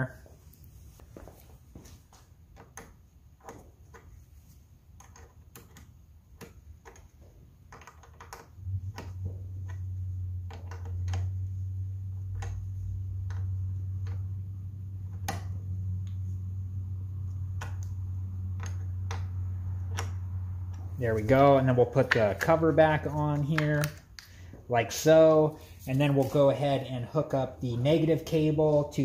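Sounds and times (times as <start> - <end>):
steady low hum: 8.5 - 29.0.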